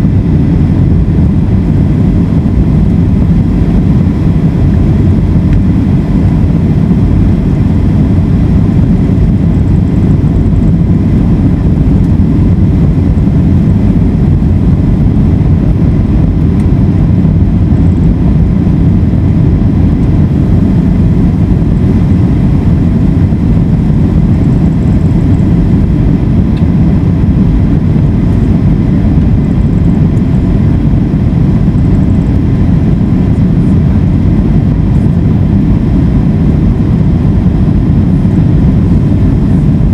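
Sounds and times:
airflow and jet engine rumble: 0.0 - 39.9
faint steady whine: 0.0 - 39.9.

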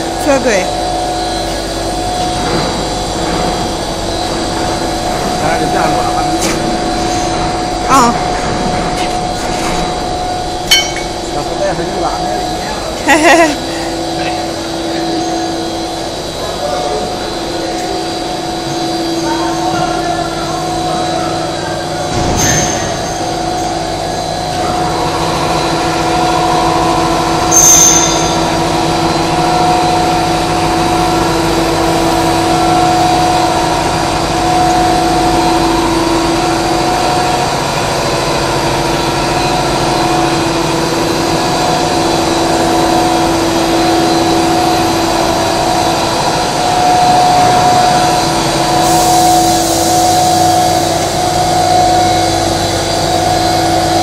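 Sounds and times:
machine drone with hum tones: 0.0 - 54.0
hiss: 48.8 - 51.2.

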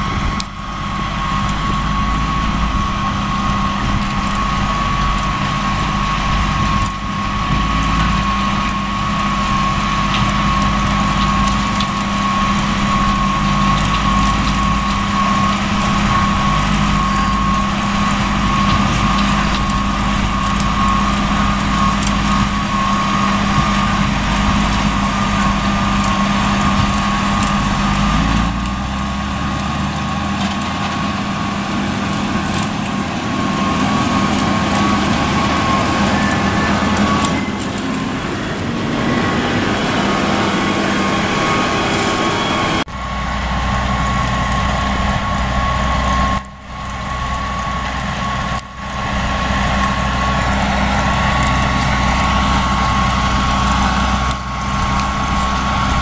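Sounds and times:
tractor diesel engines droning: 0.0 - 56.0.

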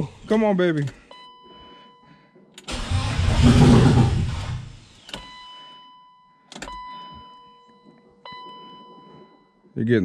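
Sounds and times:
engine cranked by starter: 2.6 - 5.2.

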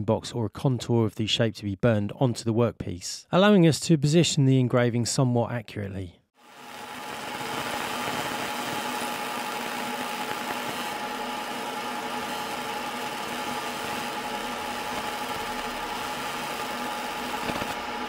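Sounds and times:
laser engraver humming: 6.4 - 18.0.

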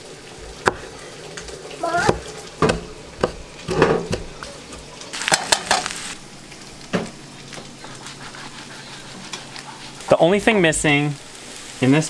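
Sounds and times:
food sizzling in a skillet: 0.0 - 12.0
knife cutting on wooden board: 0.4 - 4.9.

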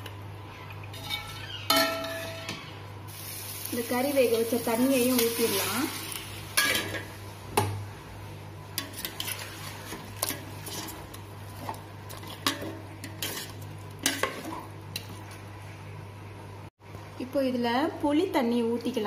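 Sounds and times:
soft sizzle: 0.0 - 17.2
ladle scraping steel pot: 0.9 - 2.6, 8.8 - 14.6.

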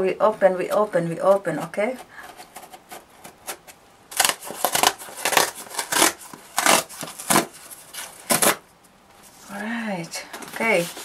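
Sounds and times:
packing tape tearing: 2.5 - 8.6.

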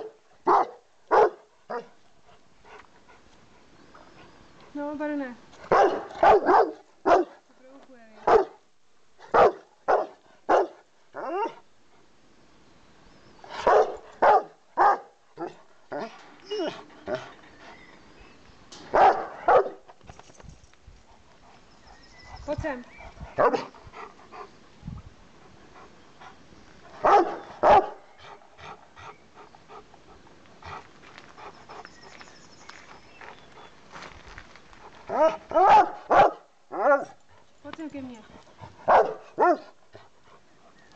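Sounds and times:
dog barking angrily: 0.0 - 1.8, 5.7 - 7.3, 8.3 - 8.6, 9.3 - 10.8, 13.6 - 15.5, 18.9 - 19.8, 27.0 - 28.0, 35.1 - 37.1, 38.9 - 39.7
dog whining yelp: 16.0 - 17.9.

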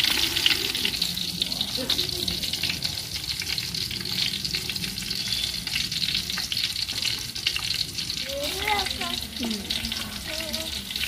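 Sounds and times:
fish sizzling in hot oil: 0.0 - 11.0.

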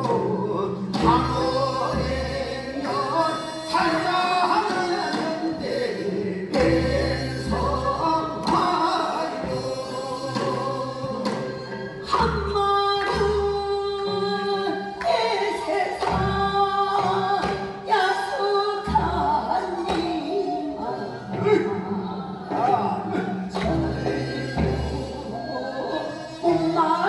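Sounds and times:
instrumental accompaniment: 0.0 - 27.0
person singing folk song: 0.0 - 27.0
low drum beats: 4.6 - 14.6.

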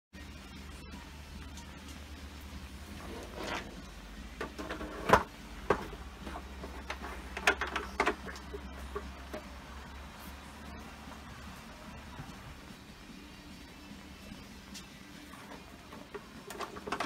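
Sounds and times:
plastic and metal parts knocking: 4.4 - 9.4, 16.0 - 17.0.

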